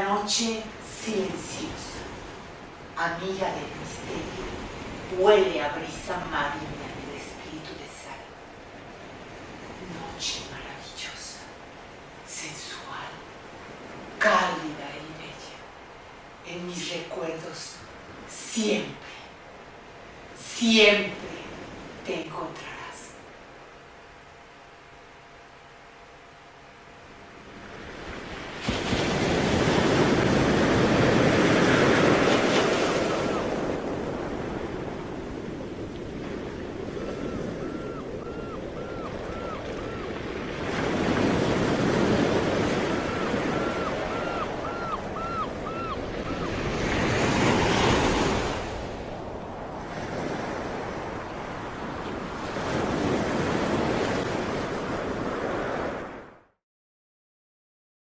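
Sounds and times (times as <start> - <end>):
waves breaking on beach: 0.0 - 10.8, 27.3 - 56.3
small high calls: 37.0 - 40.4, 42.6 - 47.0.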